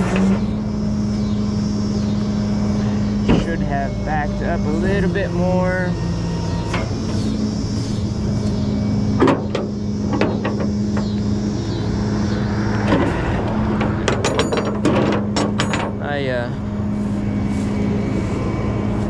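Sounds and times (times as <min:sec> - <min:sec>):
tow truck hydraulic hum: 0:00.0 - 0:19.0
sharp metal clanks: 0:13.8 - 0:16.2.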